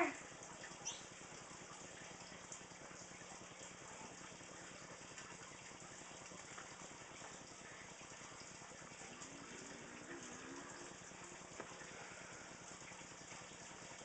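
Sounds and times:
low hum: 8.8 - 13.2.

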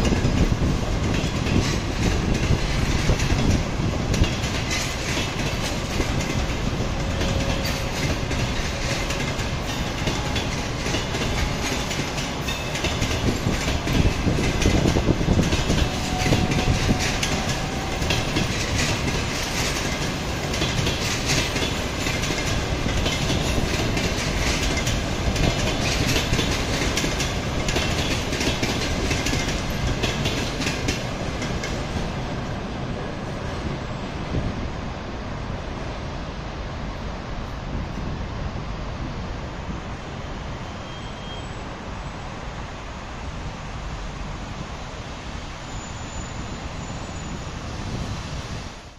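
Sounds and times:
train wheels clattering over rails: 0.0 - 34.7.

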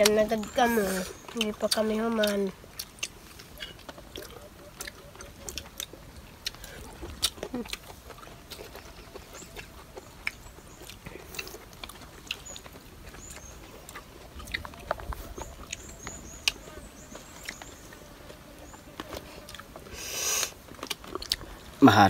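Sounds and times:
people eating with hands: 0.0 - 22.0
faint bird chirps: 12.2 - 20.4
short breathy hiss: 19.9 - 20.6.

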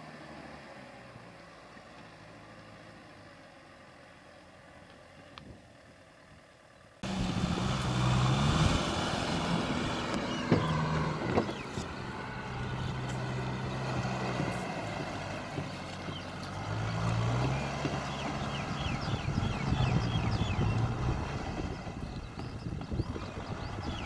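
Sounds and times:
tractor diesel engine under load: 0.0 - 24.0
tiller churning mud: 7.0 - 24.0.

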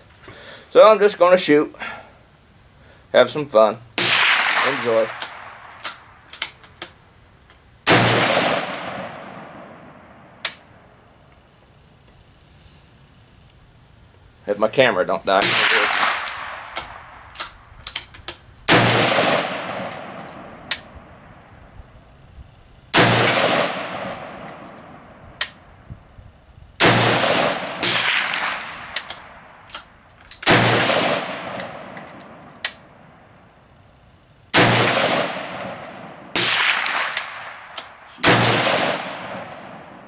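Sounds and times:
rifle shots with echo: 4.0 - 5.7, 7.9 - 10.4, 15.4 - 17.3, 18.7 - 21.2, 22.9 - 25.2, 26.8 - 29.5, 30.4 - 33.0, 34.6 - 40.0
light metal clinks: 17.8 - 20.8, 24.1 - 25.8, 31.6 - 32.8, 35.2 - 36.4, 38.6 - 39.8.

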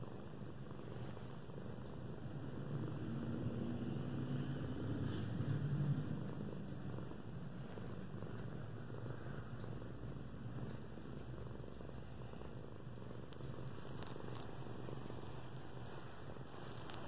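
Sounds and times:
cat purring: 0.0 - 17.0
faint ticks: 4.4 - 6.3, 13.2 - 14.6, 16.6 - 17.0.

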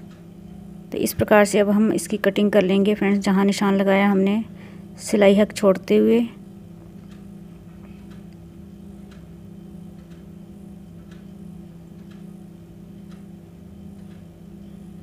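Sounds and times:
steady low hum: 0.0 - 15.0
clock ticking: 5.0 - 15.0.

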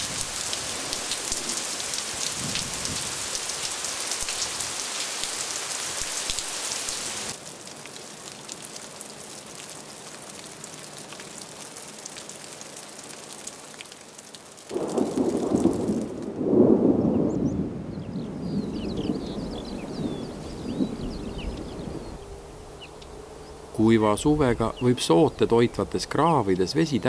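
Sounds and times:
heavy rain on grass: 0.0 - 24.6
rumble of thunder: 14.7 - 22.2.

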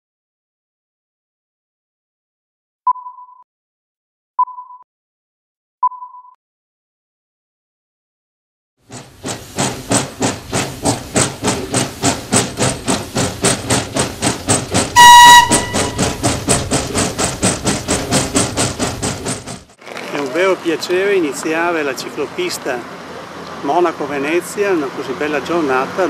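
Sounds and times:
steam locomotive exhaust chuffing: 8.8 - 19.8
locomotive whistle blast: 15.0 - 16.2.

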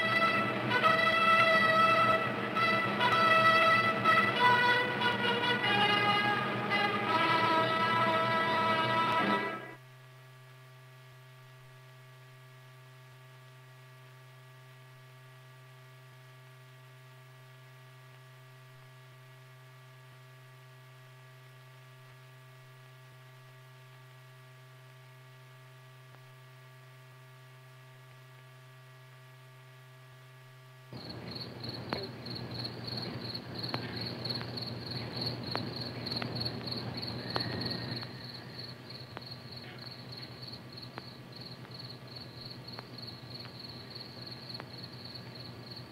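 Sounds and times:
faint electrical hum: 0.0 - 45.9
crickets chirping: 31.0 - 45.9
scattered clicks: 31.2 - 39.5.

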